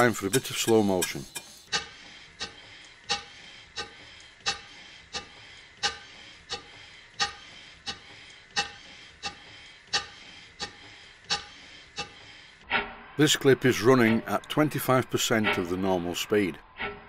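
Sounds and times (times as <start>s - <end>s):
steam engine exhaust chuffing: 0.0s - 12.3s.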